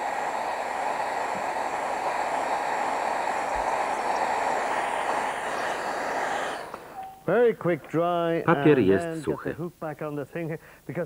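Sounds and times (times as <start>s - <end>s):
hair dryer blowing: 0.0s - 7.2s.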